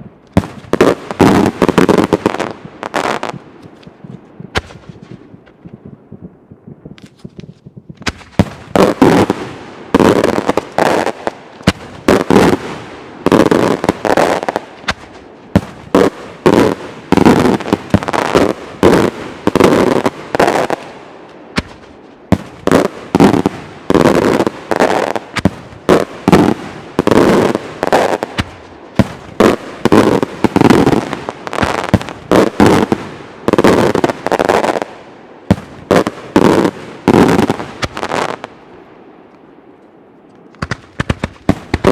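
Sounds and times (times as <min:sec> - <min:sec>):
fireworks bangs: 0:00.0 - 0:05.8, 0:06.9 - 0:38.6, 0:40.5 - 0:41.9.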